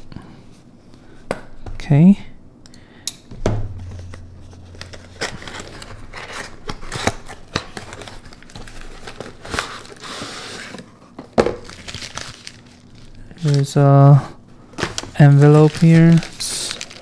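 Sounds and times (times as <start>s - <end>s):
sharp thump: 3.3s - 7.3s
packing tape scraping and crackling: 5.2s - 11.0s, 11.6s - 17.0s.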